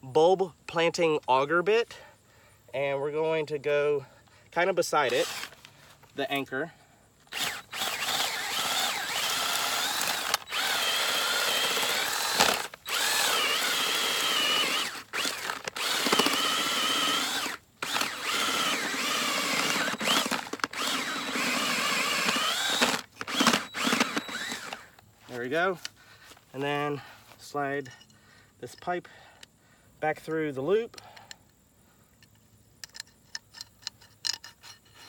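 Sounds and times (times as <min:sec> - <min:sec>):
power drill whining into soil: 0:05.0 - 0:06.4, 0:07.2 - 0:25.1.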